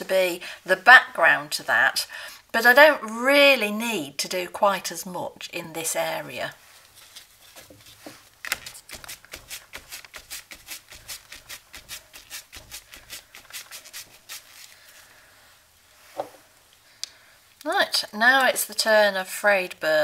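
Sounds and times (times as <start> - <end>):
sponge dabbing on paper: 6.9 - 15.0.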